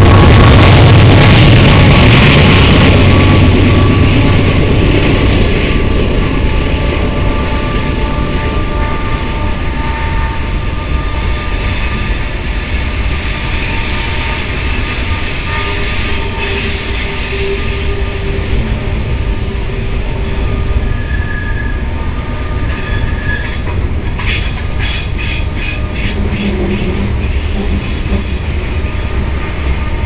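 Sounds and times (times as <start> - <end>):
locomotive engine rumble: 0.0 - 30.0
train cars rolling on rails: 0.0 - 30.0.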